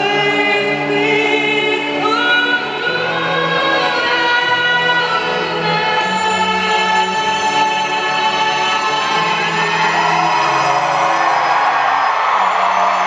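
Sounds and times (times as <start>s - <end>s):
woman singing: 0.0s - 10.0s.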